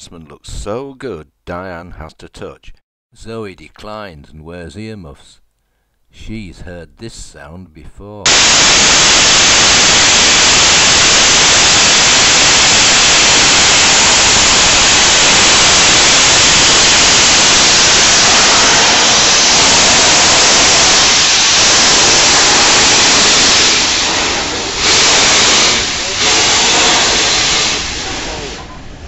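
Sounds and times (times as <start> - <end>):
steam locomotive blowing off steam: 8.3 - 29.0.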